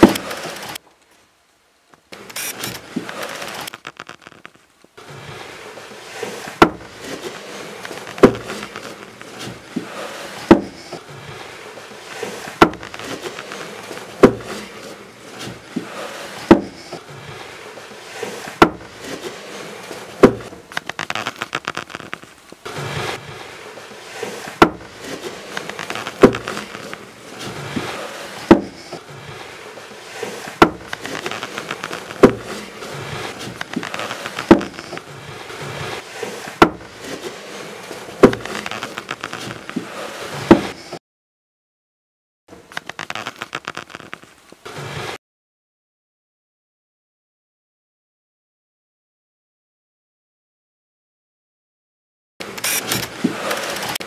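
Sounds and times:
crackling rustling noise: 0:00.0 - 0:41.0, 0:42.6 - 0:45.2, 0:52.4 - 0:54.0
sharp knocks: 0:06.6 - 0:06.9, 0:08.1 - 0:08.8, 0:10.5 - 0:10.8, 0:12.6 - 0:13.3, 0:14.2 - 0:14.7, 0:18.6 - 0:18.9, 0:20.2 - 0:20.5.

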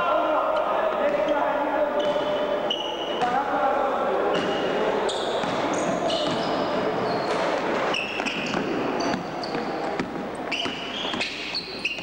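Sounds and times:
shoes squeaking on court floor: 0:01.1 - 0:03.4, 0:04.3 - 0:12.0
basketball bouncing: 0:05.4 - 0:07.5, 0:08.1 - 0:12.0.

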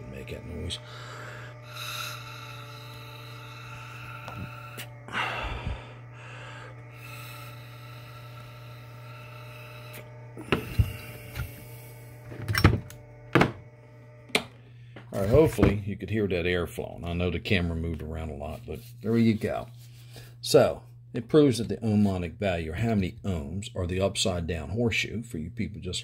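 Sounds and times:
low hum: 0:00.0 - 0:25.9.

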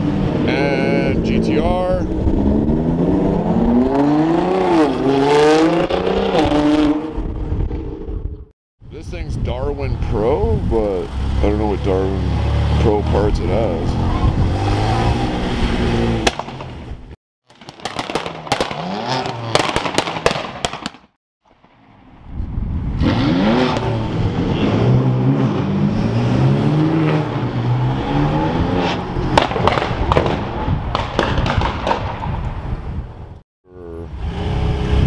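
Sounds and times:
sports car engines revving: 0:00.0 - 0:08.1, 0:09.9 - 0:16.7, 0:18.6 - 0:19.8, 0:23.0 - 0:30.8
exhaust pops and crackles: 0:16.2 - 0:16.9, 0:17.5 - 0:21.1, 0:28.8 - 0:32.6.

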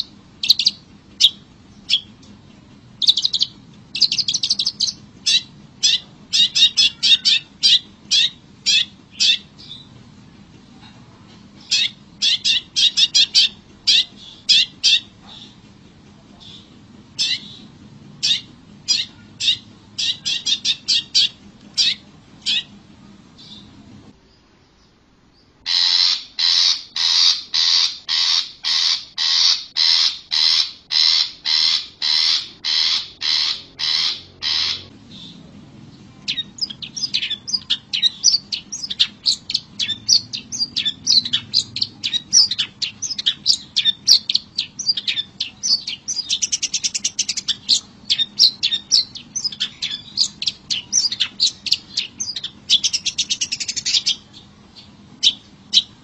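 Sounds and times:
shrike chattering song: 0:00.0 - 0:10.7, 0:11.5 - 0:23.8, 0:25.6 - 0:56.0
shrike harsh calls: 0:03.0 - 0:09.8, 0:25.6 - 0:35.4.

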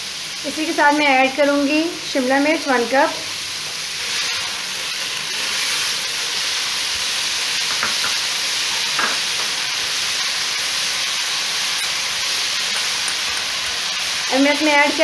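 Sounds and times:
vegetables sizzling in hot oil: 0:00.0 - 0:15.0
spatula stirring in a wok: 0:03.5 - 0:14.4.

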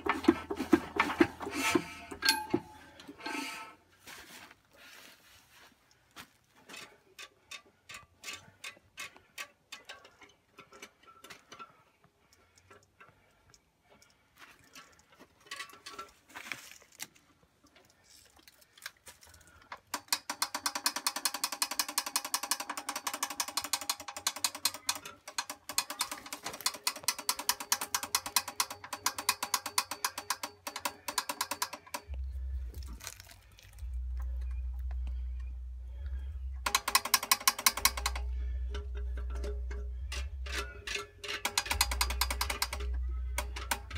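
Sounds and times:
engine parts clicking and ratcheting: 0:00.0 - 0:03.8, 0:06.5 - 0:17.1, 0:17.7 - 0:43.9
low engine rumble: 0:32.0 - 0:36.8, 0:37.8 - 0:43.9.

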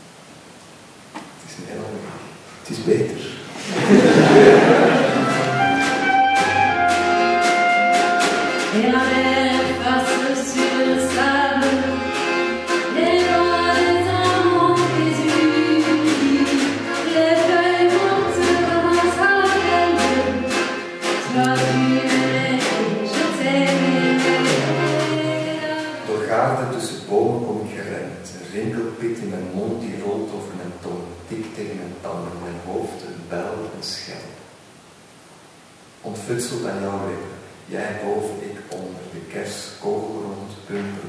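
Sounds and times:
drum and cymbal hits: 0:04.0 - 0:08.8
accordion: 0:04.3 - 0:26.3
woman singing: 0:08.6 - 0:12.2, 0:12.9 - 0:20.6, 0:21.2 - 0:26.1.

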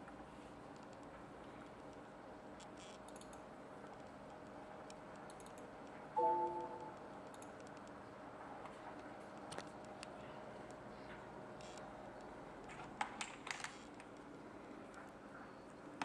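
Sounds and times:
computer chime: 0:06.2 - 0:07.0.

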